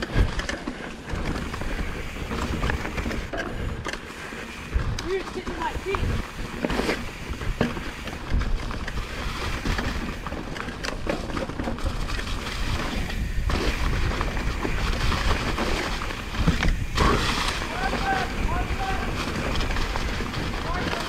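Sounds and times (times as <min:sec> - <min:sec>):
bike rattling over rocks: 0:00.0 - 0:21.0
wind rumble on microphone: 0:04.6 - 0:21.0.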